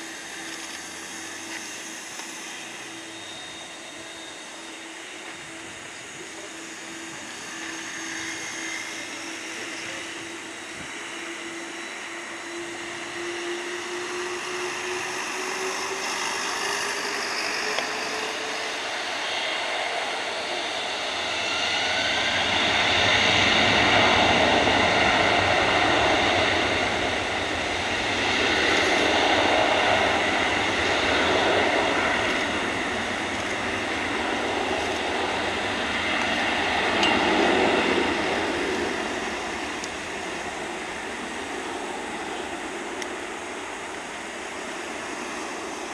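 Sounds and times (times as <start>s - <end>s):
jet engines spooling up: 0.0s - 45.9s.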